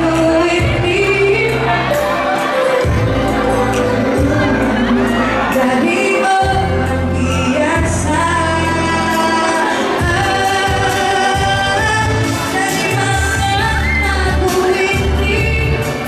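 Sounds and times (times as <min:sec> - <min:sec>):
voices singing: 0:00.0 - 0:16.0
long held bass notes: 0:02.8 - 0:09.2.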